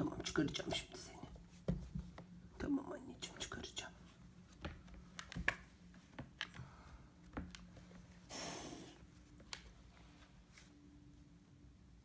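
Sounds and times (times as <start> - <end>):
cat hissing: 8.3 - 9.0.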